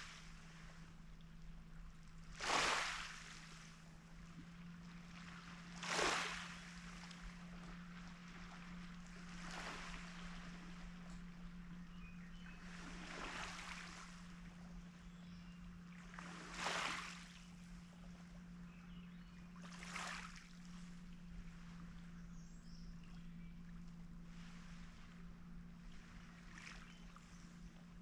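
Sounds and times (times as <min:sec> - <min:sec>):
small waves on pebble beach: 0:02.3 - 0:03.7, 0:05.8 - 0:07.0, 0:16.2 - 0:17.3.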